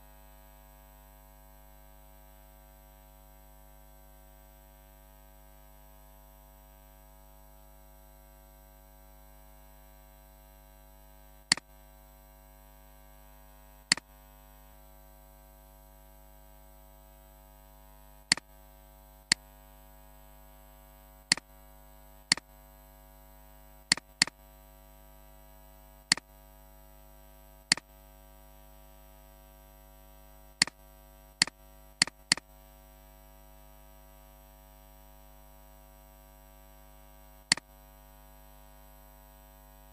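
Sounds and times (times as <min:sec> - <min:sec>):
computer mouse clicks: 0:23.9 - 0:24.4, 0:31.4 - 0:32.4.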